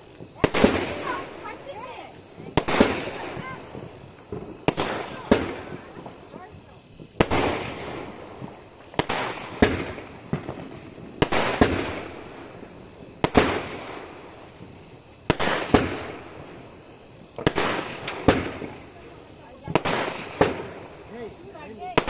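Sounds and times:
firework shells bursting: 0.0s - 22.0s.

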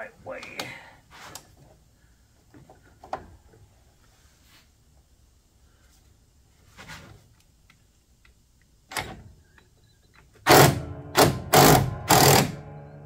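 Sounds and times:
impact wrench hammering: 10.5s - 13.0s.

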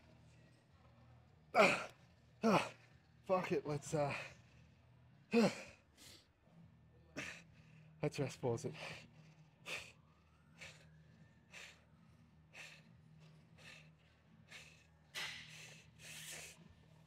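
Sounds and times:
person breathing hard: 8.7s - 10.0s, 10.6s - 10.9s, 11.5s - 11.9s, 12.5s - 16.7s.

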